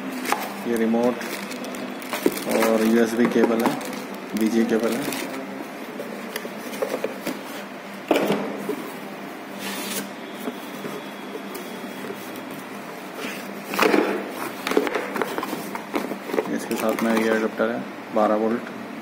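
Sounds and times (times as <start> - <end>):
cardboard packing rustling: 0.0 - 7.7, 9.6 - 17.5.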